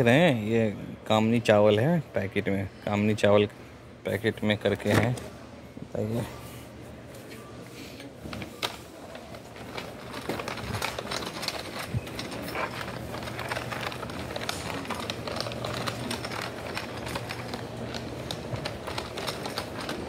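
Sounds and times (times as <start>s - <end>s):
plastic basket rattling: 8.4s - 20.0s.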